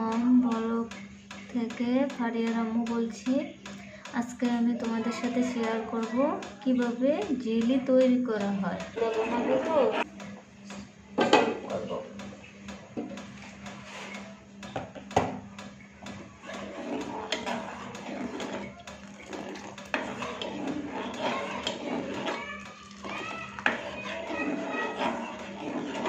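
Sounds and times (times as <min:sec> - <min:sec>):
metal spoon stirring in a pot: 0:16.1 - 0:26.0.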